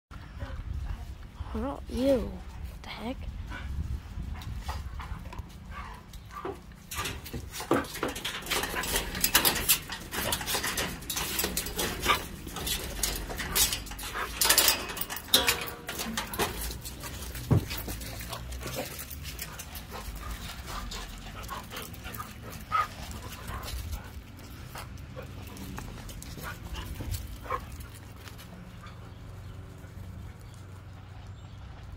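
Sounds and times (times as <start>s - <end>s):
dogs moving about: 3.5s - 31.9s
chain-link gate rattling: 5.7s - 29.1s.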